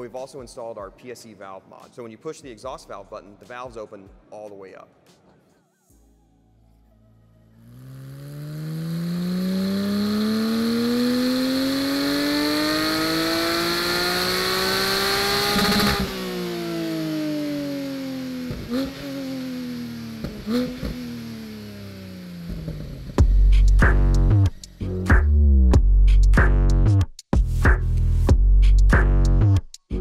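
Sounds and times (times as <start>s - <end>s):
engine revving at full throttle: 7.6s - 23.2s
exhaust pops: 18.4s - 19.1s, 20.1s - 21.1s, 22.4s - 24.6s.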